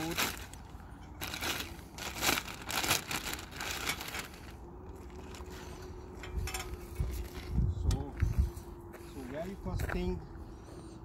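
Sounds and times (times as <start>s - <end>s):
plastic wrapping crinkling and tearing: 0.0s - 5.5s.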